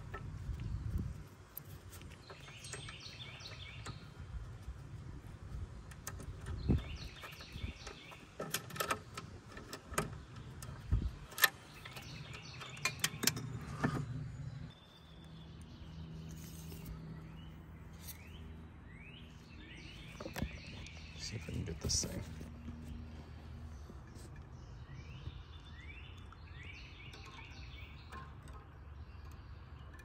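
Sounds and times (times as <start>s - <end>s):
small birds chirping: 0.0s - 30.0s
steady low hum: 0.0s - 30.0s
metal hardware clicks and knocks: 5.8s - 14.5s, 26.9s - 30.0s.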